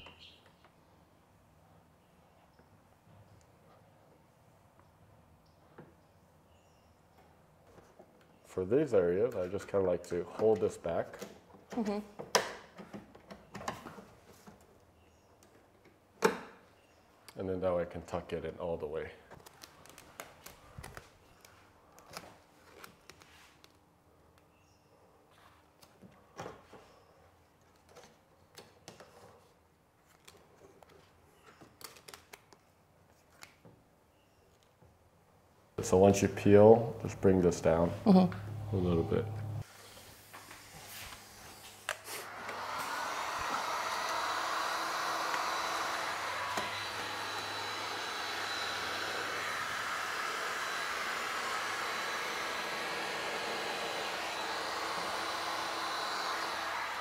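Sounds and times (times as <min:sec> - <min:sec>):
heat gun blowing air: 0:38.5 - 0:57.0.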